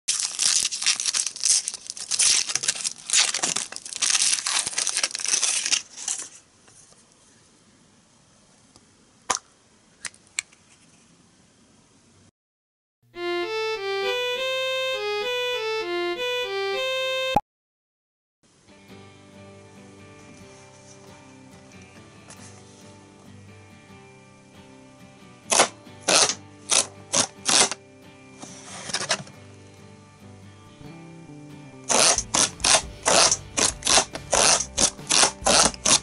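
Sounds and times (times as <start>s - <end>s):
foil wrapper crinkling and tearing: 0.1s - 6.5s, 25.5s - 27.8s, 28.5s - 29.4s, 31.9s - 36.0s.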